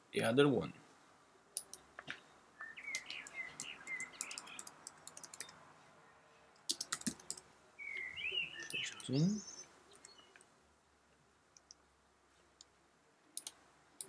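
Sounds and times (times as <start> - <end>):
small bird chirping: 1.7 - 5.6, 6.7 - 10.5
mouse click: 2.9 - 5.6, 13.4 - 13.6
keyboard typing: 3.6 - 5.6, 6.6 - 7.5.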